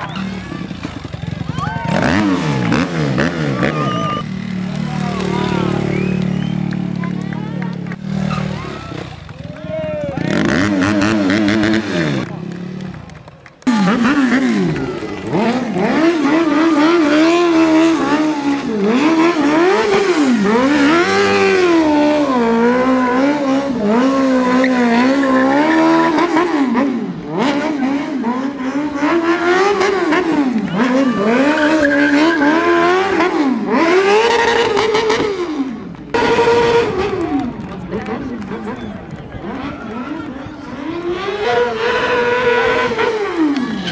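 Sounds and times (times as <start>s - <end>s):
motorcycle engine revving: 0.0s - 43.9s
tyre screeching on asphalt: 8.0s - 9.3s, 14.5s - 26.8s, 29.3s - 35.3s, 42.0s - 43.9s.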